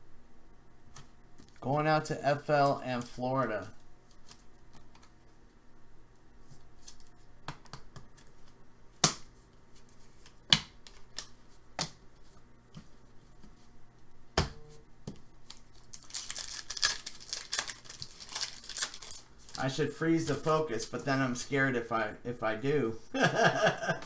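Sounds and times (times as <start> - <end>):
cards tapping and clicking: 6.8 - 9.3
foil wrapper crinkling and tearing: 15.4 - 20.5.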